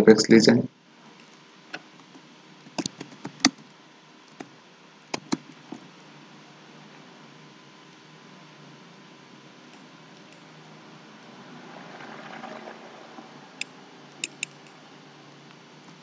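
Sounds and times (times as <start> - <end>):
low hum and hiss: 0.0 - 16.0
computer mouse clicks: 2.8 - 3.6, 5.1 - 5.5, 13.6 - 14.8.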